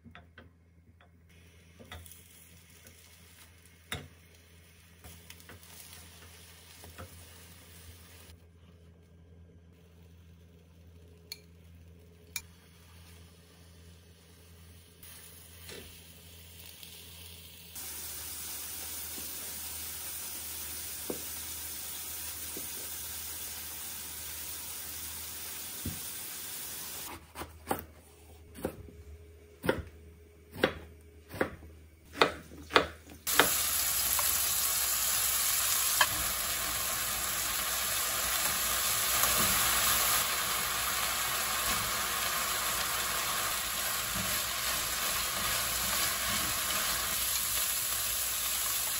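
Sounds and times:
food sizzling in a frying pan: 1.3s - 8.4s, 12.4s - 27.1s, 33.2s - 48.9s.

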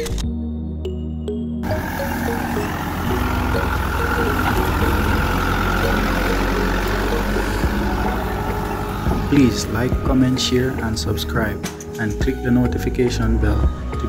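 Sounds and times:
truck engine idling: 1.6s - 12.4s.

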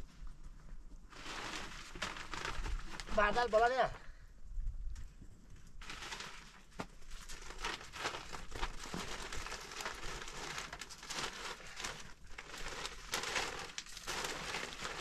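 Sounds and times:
plastic crinkling and rustling: 0.0s - 4.0s, 4.9s - 15.0s.

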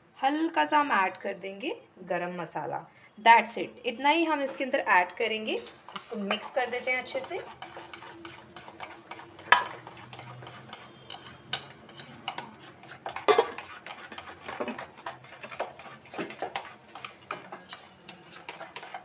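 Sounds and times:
spoon stirring batter: 4.4s - 19.0s.

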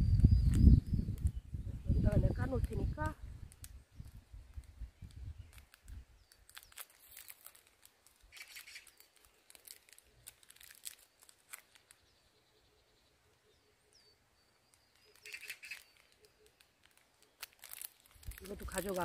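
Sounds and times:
wrapper crinkling and tearing: 3.5s - 12.2s, 14.6s - 19.0s
faint bird chirps: 8.3s - 18.4s.

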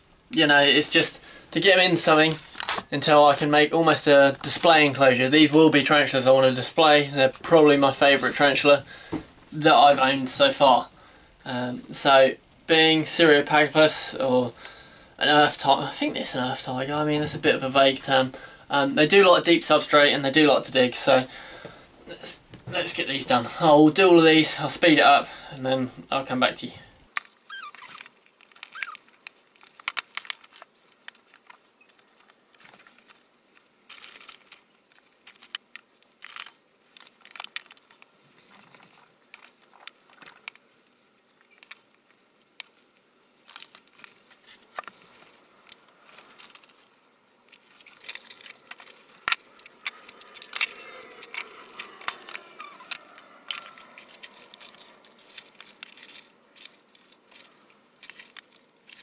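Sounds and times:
hands handling moist substrate: 27.9s - 59.0s.

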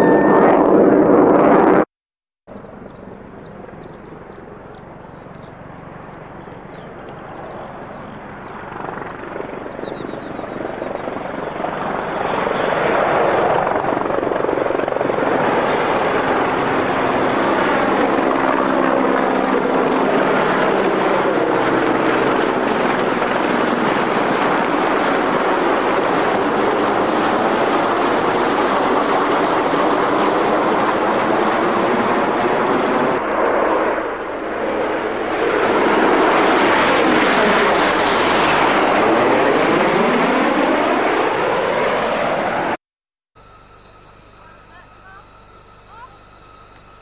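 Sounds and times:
aircraft propeller drone: 0.0s - 1.8s, 2.5s - 42.8s, 43.4s - 47.0s
faint bird chirps: 2.5s - 12.8s, 43.4s - 47.0s.

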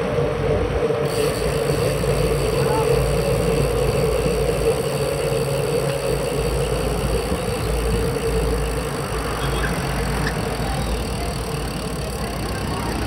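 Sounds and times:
wind rumble on microphone: 0.0s - 10.1s
tyres rolling on asphalt: 0.0s - 13.0s.

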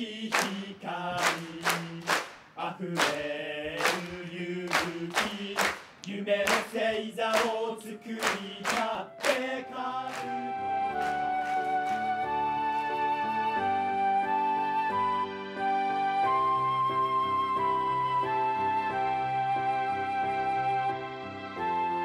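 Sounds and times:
group singing a cheer: 0.0s - 11.2s
sharp regular beats: 1.2s - 6.8s
soft instrumental music: 8.9s - 22.0s.

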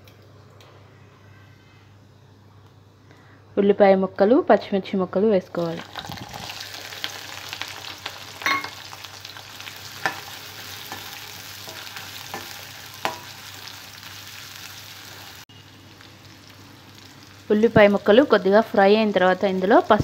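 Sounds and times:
onions sizzling in hot oil: 5.6s - 20.0s.

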